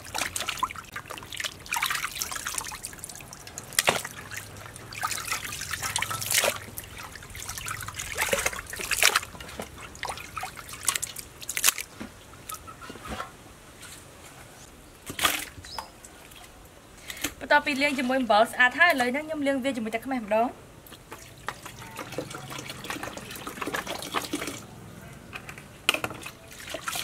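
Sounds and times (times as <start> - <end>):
water splashing: 0.0 - 12.6, 20.9 - 24.8, 26.0 - 27.0
water sloshing and dripping: 0.0 - 14.0, 15.0 - 19.2, 20.8 - 24.8, 25.4 - 27.0.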